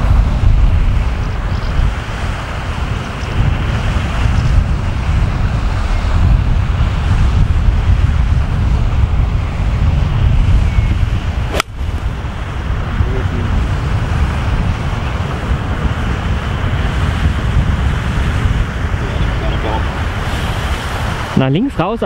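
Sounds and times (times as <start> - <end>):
wind buffeting the microphone: 0.0 - 22.0
golf club striking ball: 11.5 - 12.0.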